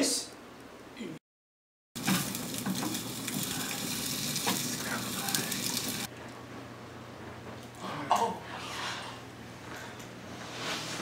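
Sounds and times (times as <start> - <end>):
eggs sizzling in a pan: 2.0 - 6.1.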